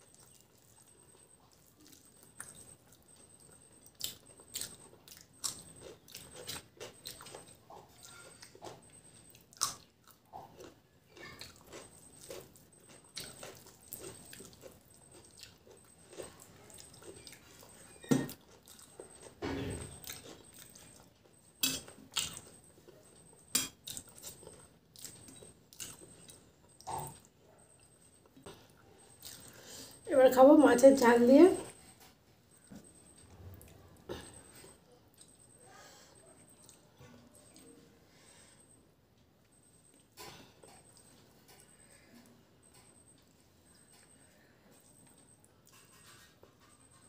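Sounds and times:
chewing and mouth smacks: 0.0s - 19.4s, 20.0s - 29.6s, 36.5s - 37.8s.

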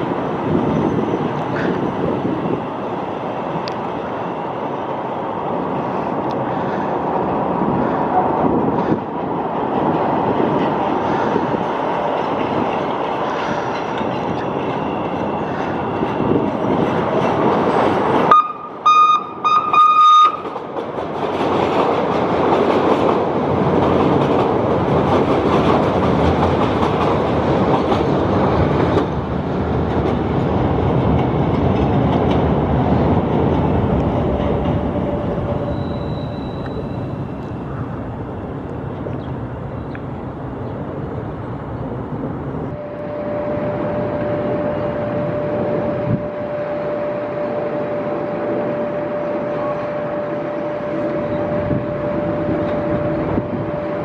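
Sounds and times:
train wheels rumbling on rail: 0.0s - 54.0s
train horn blasts: 18.3s - 20.5s, 42.7s - 54.0s.

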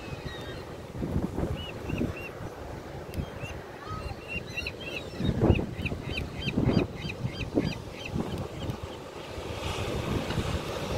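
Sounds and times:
surf rushing: 0.0s - 10.9s
wind on microphone: 0.0s - 10.9s
gulls calling: 1.4s - 9.4s.

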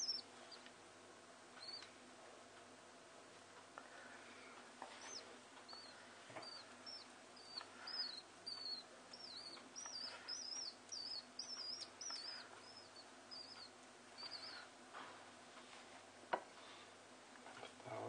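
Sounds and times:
bird chick chirping: 0.0s - 0.7s, 1.6s - 2.0s, 4.9s - 14.8s.

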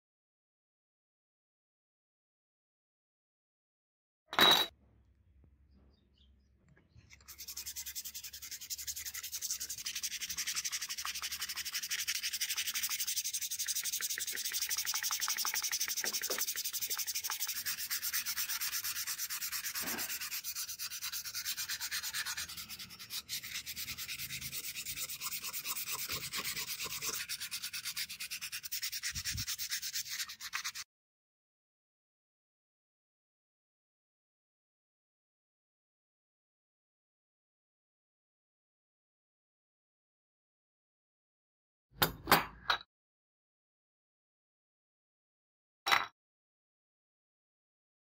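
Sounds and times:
hand sanding metal: 7.3s - 30.8s.

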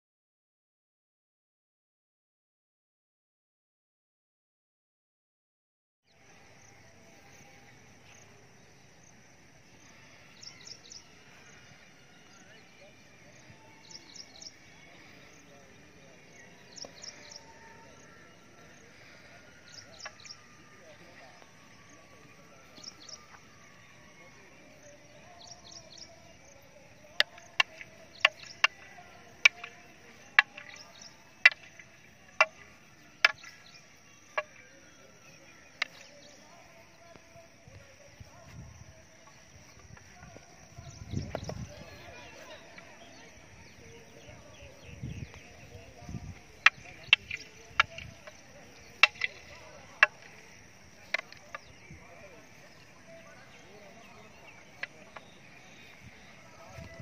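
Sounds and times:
low outdoor background: 6.0s - 57.0s
wooden staffs clacking: 46.6s - 50.4s.

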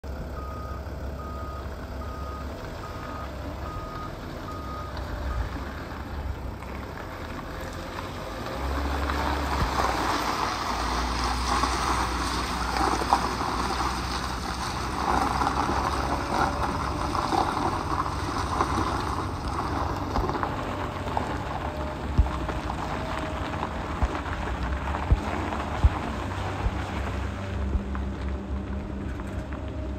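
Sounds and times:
diesel engine running: 0.0s - 29.9s
tyres rolling over gravel: 0.1s - 29.9s
reversing alarm beeping: 0.4s - 5.6s.

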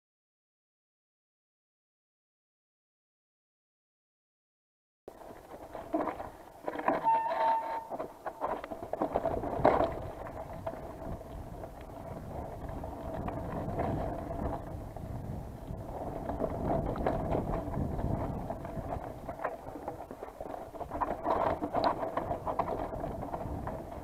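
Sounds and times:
bike rattling and knocking: 5.1s - 24.0s
bike tyres rumbling over dirt: 5.1s - 24.0s
wind on microphone: 7.0s - 24.0s.

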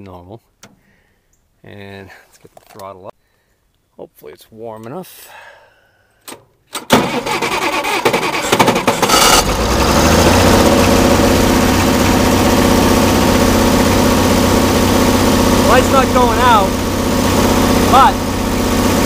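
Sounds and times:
starter motor cranking: 6.9s - 19.0s
tractor engine running: 6.9s - 19.0s.

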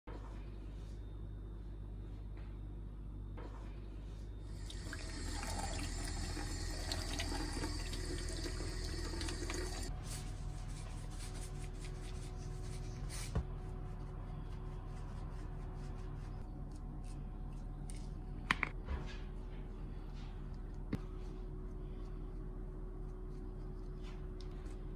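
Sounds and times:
tap water running: 4.5s - 9.9s.

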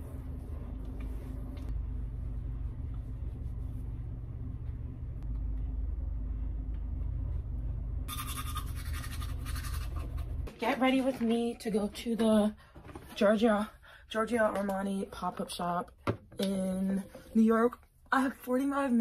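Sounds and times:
low hum: 0.0s - 10.7s
toothbrush scrubbing teeth: 8.1s - 10.3s.

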